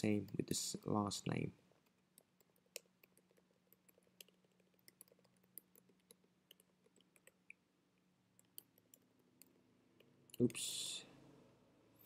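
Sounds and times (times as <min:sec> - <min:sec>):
typing on a keyboard: 0:02.2 - 0:07.4.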